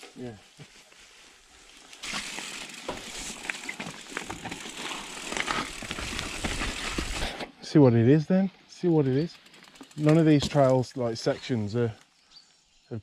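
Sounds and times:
tyres crackling over dead leaves: 0:00.5 - 0:07.4
bike clicking and rattling: 0:01.7 - 0:07.4, 0:09.0 - 0:10.9.

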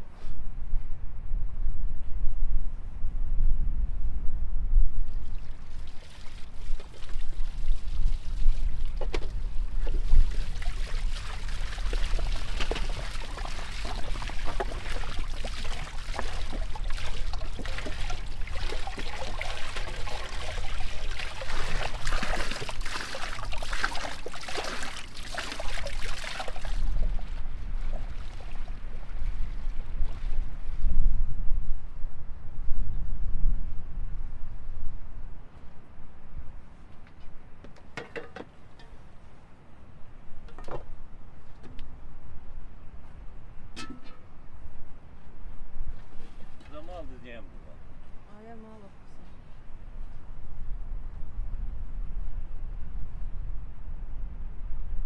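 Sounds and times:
wind rumble on microphone: 0:00.0 - 0:55.0
water splashing into metal bowls: 0:10.1 - 0:27.1.

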